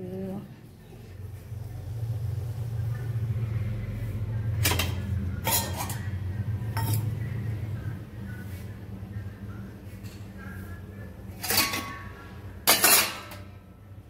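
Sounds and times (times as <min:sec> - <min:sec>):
steady low hum: 0:00.0 - 0:14.0
metal pots clanking: 0:04.6 - 0:06.1, 0:06.7 - 0:07.1, 0:11.4 - 0:13.6.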